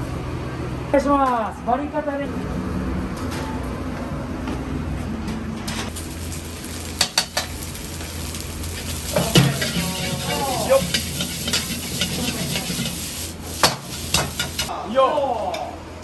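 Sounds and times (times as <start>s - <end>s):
sizzling hiss: 5.9s - 14.7s
metal utensils clinking: 8.8s - 14.7s.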